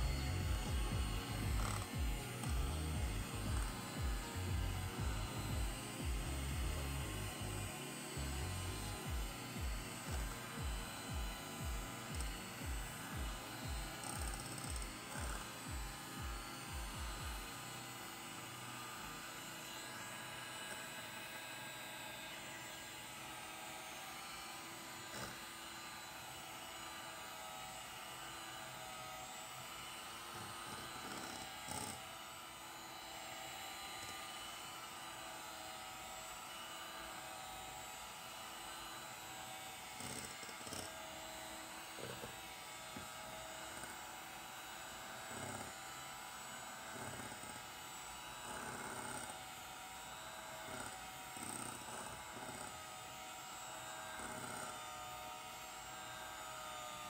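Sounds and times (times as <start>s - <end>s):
electric hand mixer whipping cream: 0.0s - 57.0s.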